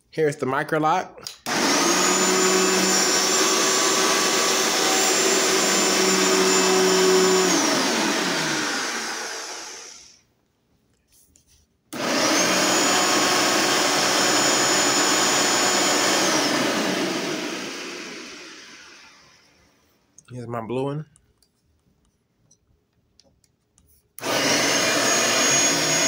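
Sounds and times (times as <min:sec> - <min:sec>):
vacuum cleaner motor whining: 0:01.5 - 0:10.2, 0:12.0 - 0:19.8, 0:24.2 - 0:26.0.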